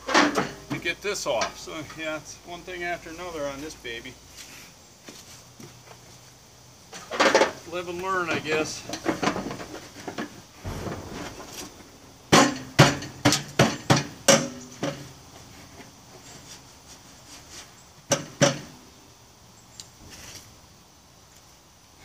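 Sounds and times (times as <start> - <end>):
sharp metal knocks: 10.6 - 13.0.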